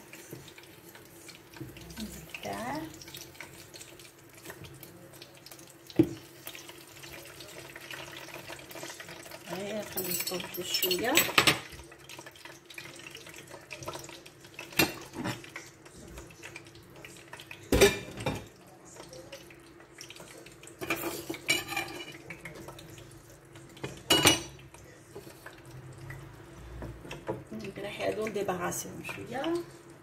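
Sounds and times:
dishes and utensils clinking: 9.8 - 11.9, 14.6 - 15.7, 17.6 - 18.6, 20.2 - 22.8, 23.8 - 25.6.

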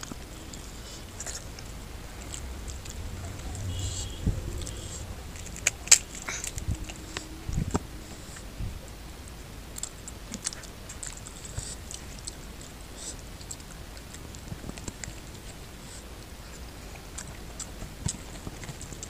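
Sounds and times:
mouth smacks and chewing: 9.8 - 19.0.

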